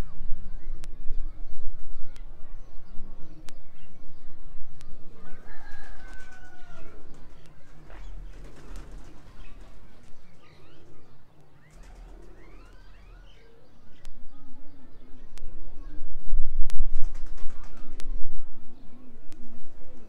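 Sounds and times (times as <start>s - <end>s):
birds chirping: 0.0s - 20.0s
pigeons cooing: 5.0s - 15.2s, 18.6s - 20.0s
wings flapping: 5.5s - 10.9s, 11.6s - 13.2s, 16.9s - 18.1s.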